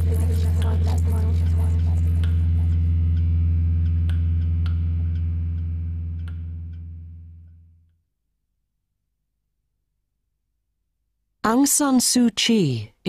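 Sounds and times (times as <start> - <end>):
low droning hum: 0.0 - 7.9.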